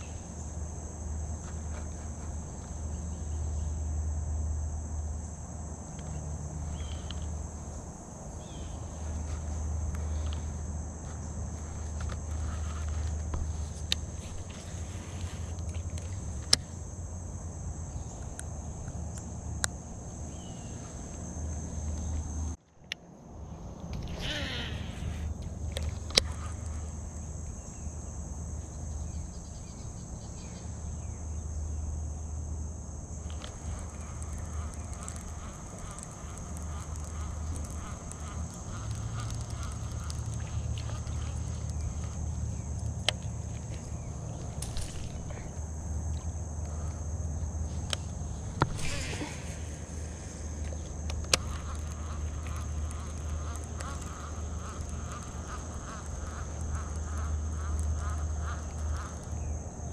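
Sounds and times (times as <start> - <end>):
insects trilling: 0.0 - 59.9
high-pitched buzz: 24.1 - 25.4
fishing reel whirring: 24.1 - 27.0, 48.7 - 59.2
low rumble: 48.2 - 53.0.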